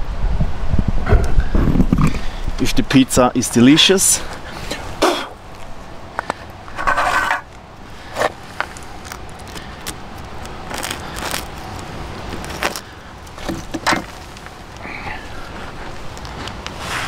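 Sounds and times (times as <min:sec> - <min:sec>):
knife scraping pizza crust: 0:06.8 - 0:07.4.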